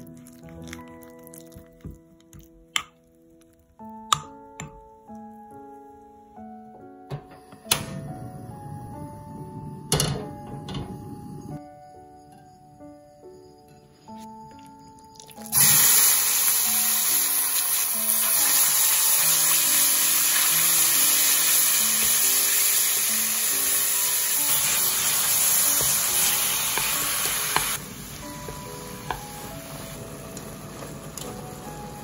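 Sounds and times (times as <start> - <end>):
meat sizzling in frying pan: 15.4 - 32.0.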